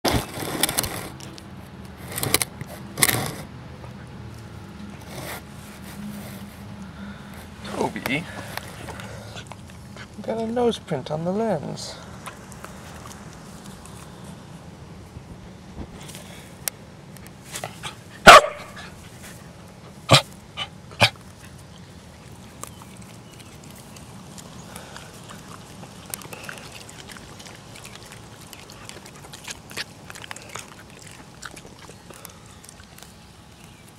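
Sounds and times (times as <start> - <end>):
dog giving short barks: 18.2 - 18.8.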